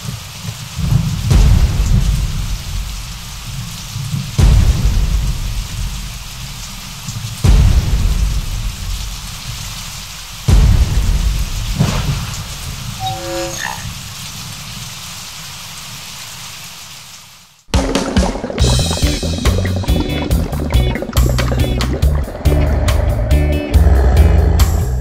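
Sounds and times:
heavy rain: 0:00.0 - 0:25.0
thunder rolling: 0:00.8 - 0:14.6, 0:17.7 - 0:25.0.

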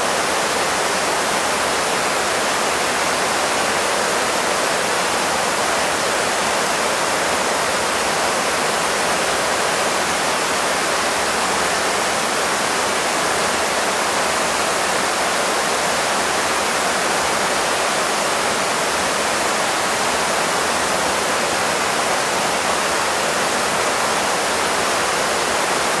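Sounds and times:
river rushing over boulders: 0:00.0 - 0:26.0.

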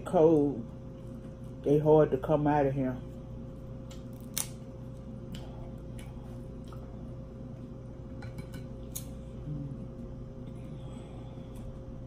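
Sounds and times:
crab shell clicking and snapping: 0:03.8 - 0:04.6.

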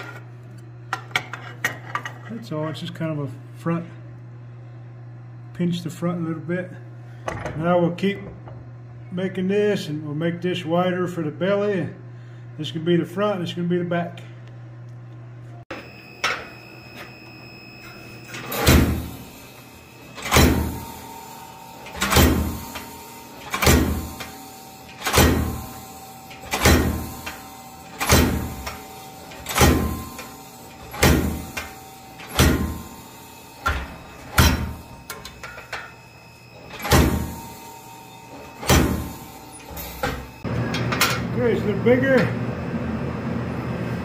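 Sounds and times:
heavy forging blows on hot steel: 0:25.0 - 0:33.0, 0:38.5 - 0:40.4.

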